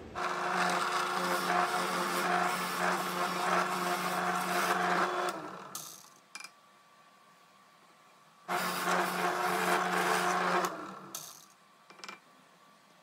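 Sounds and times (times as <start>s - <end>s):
drill press boring wood: 0.0s - 6.1s, 8.5s - 11.5s.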